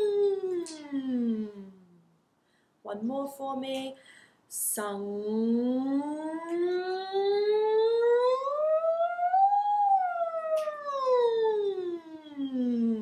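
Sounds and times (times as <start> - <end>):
woman singing vocal glide: 0.0 - 1.9, 4.7 - 8.6.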